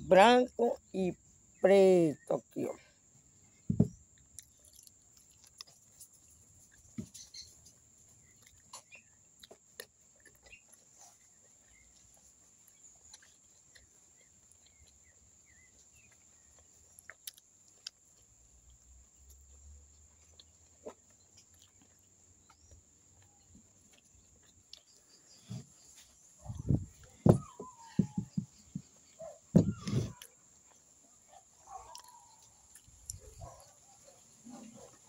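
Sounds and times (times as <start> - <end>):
faint bird chirps: 6.6 - 9.3, 22.4 - 35.0.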